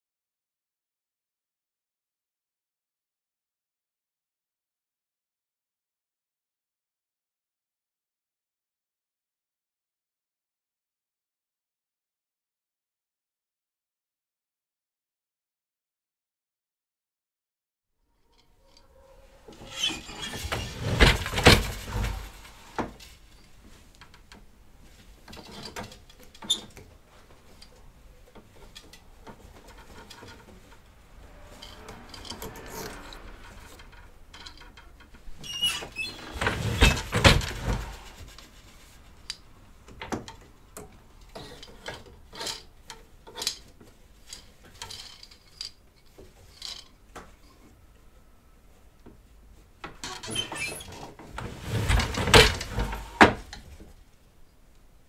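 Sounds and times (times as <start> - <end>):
loom clicks and creaks: 18.3 - 48.0, 49.0 - 54.1
shuttle rustling: 18.6 - 39.8.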